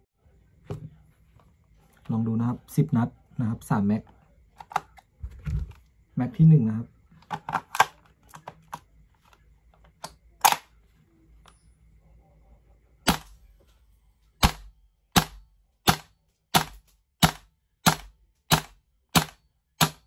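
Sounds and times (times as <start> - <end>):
airsoft rifle shots: 13.1 - 13.4, 14.4 - 20.0.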